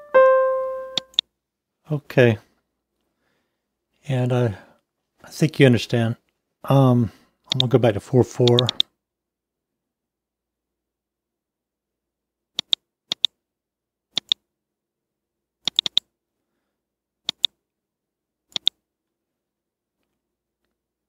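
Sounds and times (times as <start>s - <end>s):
computer mouse button clicking: 8.5s - 8.8s, 12.6s - 13.3s, 14.2s - 14.4s, 15.7s - 16.1s, 17.3s - 17.5s, 18.5s - 18.8s.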